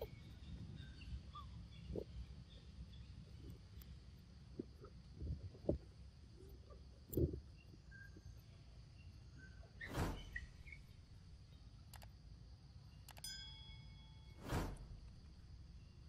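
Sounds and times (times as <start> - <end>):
low wind rumble: 0.0 - 13.0, 13.7 - 16.0
thump: 9.9 - 10.4, 14.4 - 15.0
click: 11.9 - 12.1, 13.0 - 13.3
ringing chime: 13.2 - 14.4
whoosh: 14.4 - 15.4.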